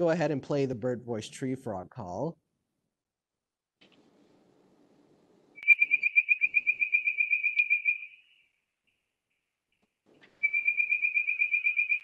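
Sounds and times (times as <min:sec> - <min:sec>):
treefrog ringing whistles: 0:05.6 - 0:08.6, 0:10.4 - 0:12.0.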